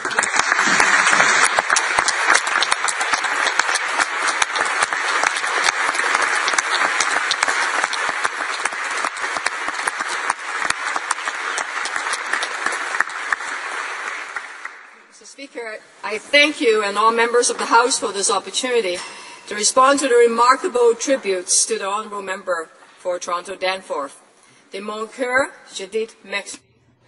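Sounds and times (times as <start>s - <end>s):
crowd applauding: 0.0s - 15.1s.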